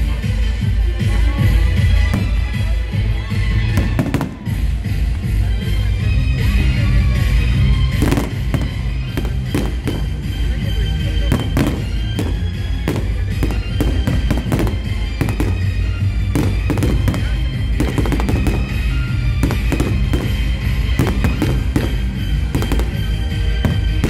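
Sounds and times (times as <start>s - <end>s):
loud music: 0.0s - 24.0s
firework shells bursting: 11.3s - 24.0s.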